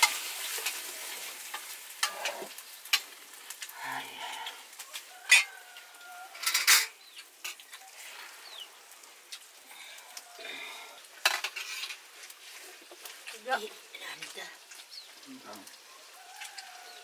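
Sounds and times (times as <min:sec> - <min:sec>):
metal utensils clinking on cookware: 0:00.0 - 0:03.1, 0:05.3 - 0:05.6, 0:06.3 - 0:07.8, 0:11.2 - 0:12.1
metal pot clanking: 0:01.5 - 0:03.1, 0:05.3 - 0:05.5, 0:06.3 - 0:07.6, 0:11.2 - 0:12.0.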